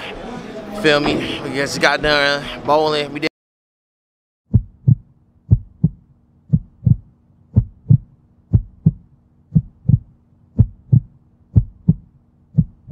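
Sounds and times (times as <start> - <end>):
faint steady hum: 4.5 - 12.9
heartbeat thumps: 4.5 - 12.9.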